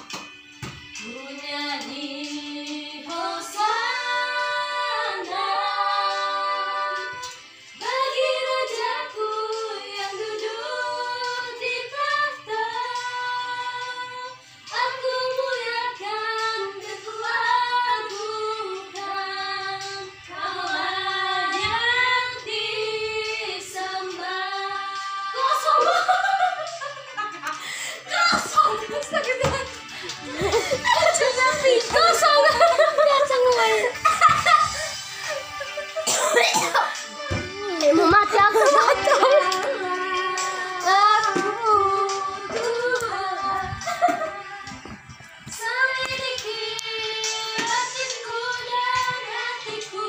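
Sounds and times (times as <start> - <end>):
woman singing: 1.0 - 26.1, 37.3 - 50.0.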